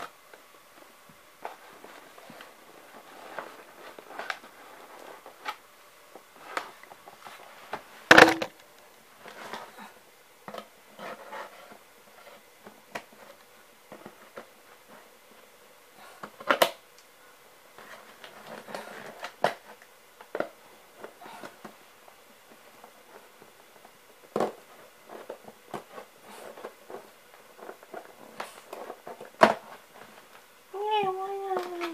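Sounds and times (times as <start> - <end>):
objects knocking and rustling: 1.4 - 8.6, 17.7 - 30.5.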